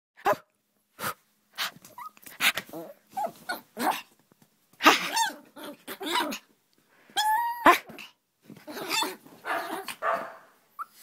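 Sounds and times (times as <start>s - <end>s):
puppy growling: 1.9s - 4.2s, 4.8s - 6.5s, 7.6s - 11.0s
puppy yapping: 4.8s - 6.4s, 8.7s - 11.0s.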